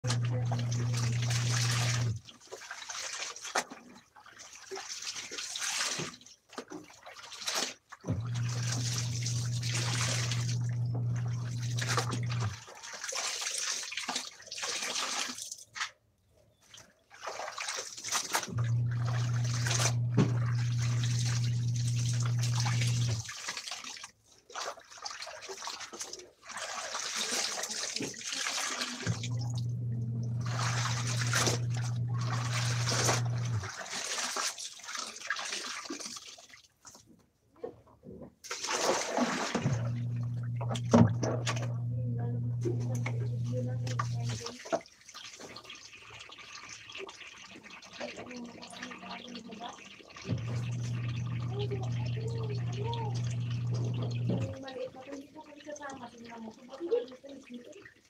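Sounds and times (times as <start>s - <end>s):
washing machine motor humming: 0.0s - 2.2s, 8.1s - 12.6s, 18.5s - 23.2s, 29.0s - 33.7s, 39.6s - 44.5s, 50.2s - 54.9s
water splashing into plastic basin: 0.0s - 58.0s.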